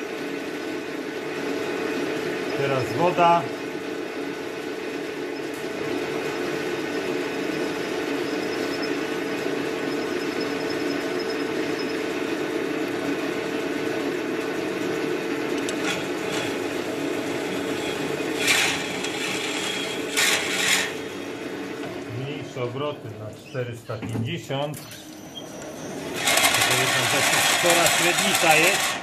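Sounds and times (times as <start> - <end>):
metal lathe running: 1.5 - 22.1, 25.9 - 29.0
drill boring into metal: 15.7 - 21.1, 26.1 - 29.0.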